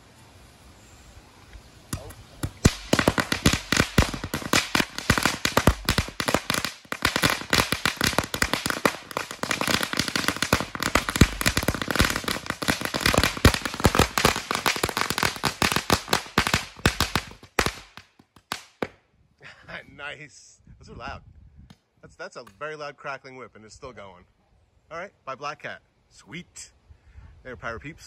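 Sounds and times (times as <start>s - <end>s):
firecrackers crackling and popping: 1.9s - 19.0s.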